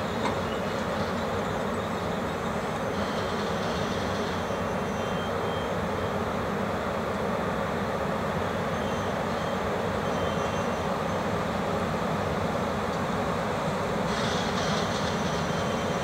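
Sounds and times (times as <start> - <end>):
electric locomotive rolling past: 0.0 - 16.0
faint high whining tones: 0.2 - 6.5, 8.4 - 11.4.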